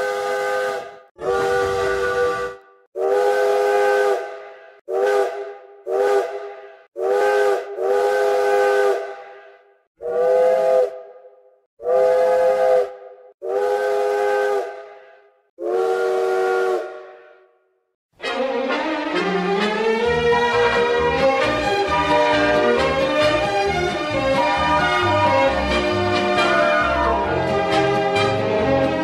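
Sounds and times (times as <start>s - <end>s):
steam locomotive chime whistle: 0.0s - 6.4s, 18.2s - 28.4s.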